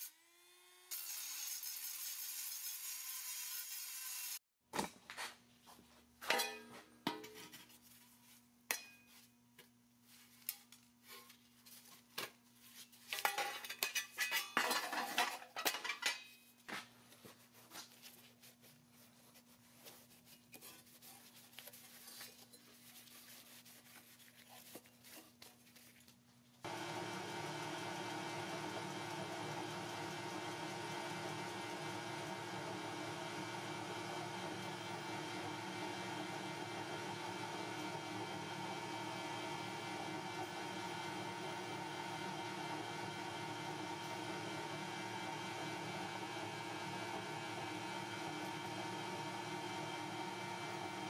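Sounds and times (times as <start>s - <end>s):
rotary tool grinding steel: 0.9s - 4.4s.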